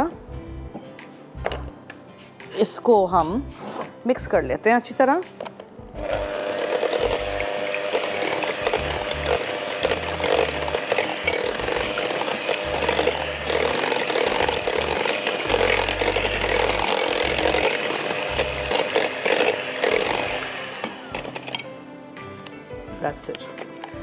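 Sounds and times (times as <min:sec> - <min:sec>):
electric hand mixer whisking: 0:06.0 - 0:21.7.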